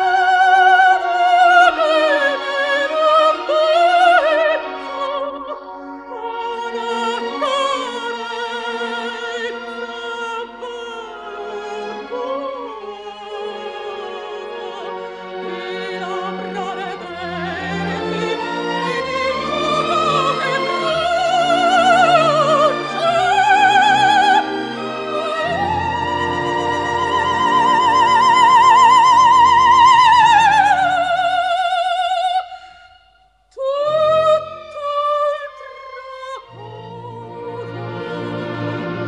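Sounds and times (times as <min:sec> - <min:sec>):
orchestral accompaniment: 0:00.0 - 0:31.6, 0:33.8 - 0:39.0
soprano singing: 0:00.0 - 0:39.0.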